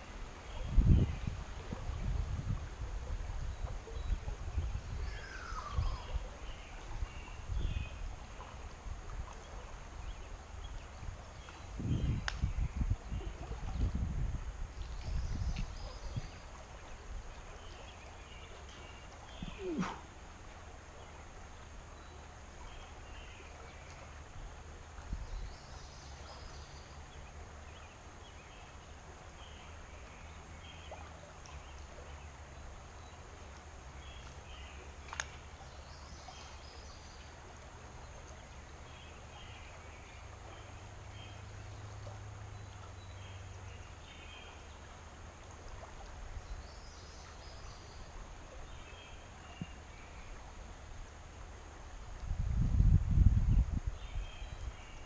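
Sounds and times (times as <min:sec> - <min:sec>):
rumble of moving air and water: 0:00.0 - 0:55.0
small birds chirping: 0:17.6 - 0:20.0.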